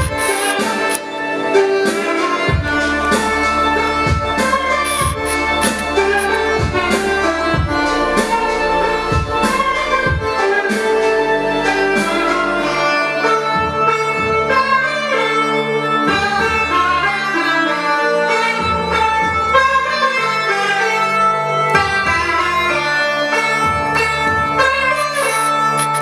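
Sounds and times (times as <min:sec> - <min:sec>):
bass-heavy music over loudspeakers: 0:00.0 - 0:14.9, 0:23.6 - 0:26.0.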